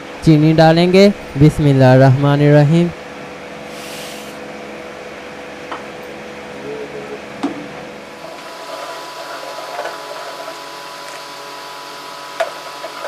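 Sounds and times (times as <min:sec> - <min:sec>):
steady background hum: 0:00.0 - 0:13.0.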